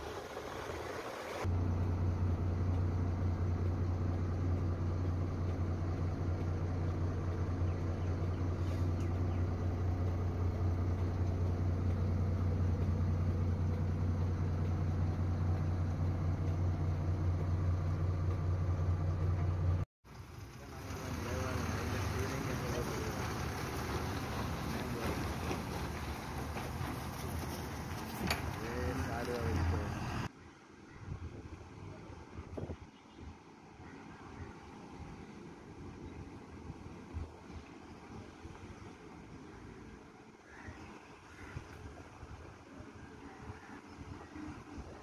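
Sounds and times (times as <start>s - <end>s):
diesel engine idling: 0.0s - 30.3s.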